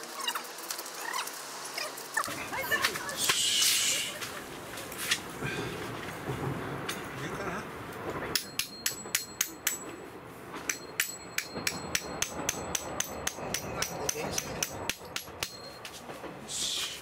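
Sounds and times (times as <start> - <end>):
rustle: 0.0 - 8.3
hammer tapping metal tent peg: 8.4 - 9.9, 10.7 - 15.7.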